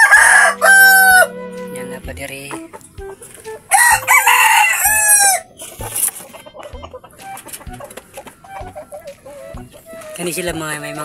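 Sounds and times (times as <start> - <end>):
rooster crowing: 0.0 - 1.4, 3.7 - 5.5
chicken clucking: 2.5 - 11.0.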